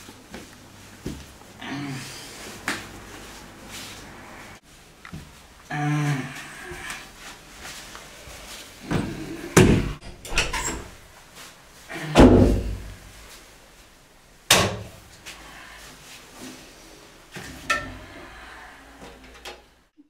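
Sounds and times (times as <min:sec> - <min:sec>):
doors opening and shutting: 0:08.9 - 0:11.0
door slamming: 0:09.6 - 0:10.9.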